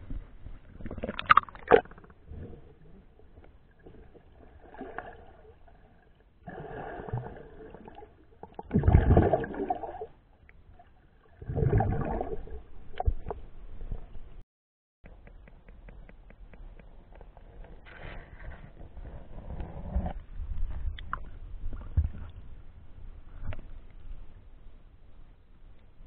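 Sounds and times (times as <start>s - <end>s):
water splashing and sloshing: 0.0s - 14.4s, 16.7s - 24.4s.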